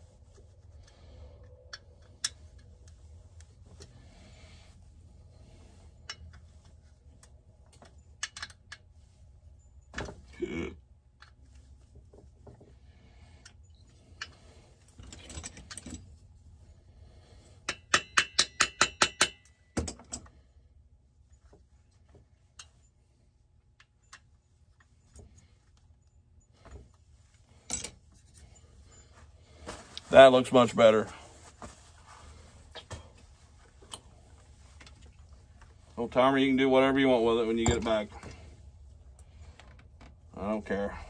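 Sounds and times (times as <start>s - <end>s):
metal parts clinking: 15.0s - 16.2s, 27.6s - 29.1s.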